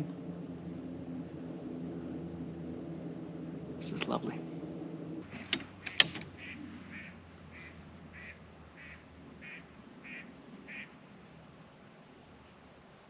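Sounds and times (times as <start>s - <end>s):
sharp knocks: 5.3s - 6.4s
mallard quacking: 6.3s - 10.9s.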